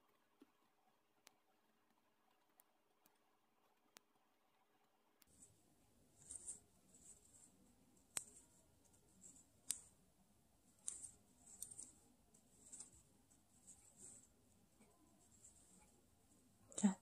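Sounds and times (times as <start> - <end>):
yarn rustling through crochet hook: 5.3 - 17.0.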